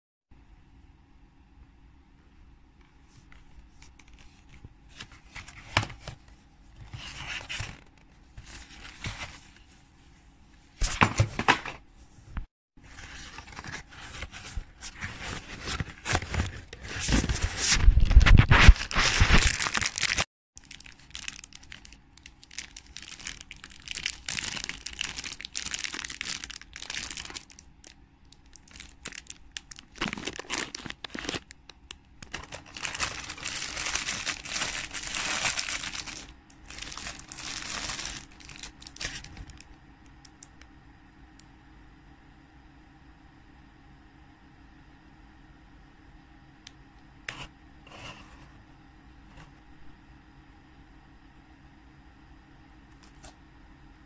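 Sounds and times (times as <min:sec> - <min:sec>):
plastic wrapper crinkling: 0:13.0 - 0:39.7.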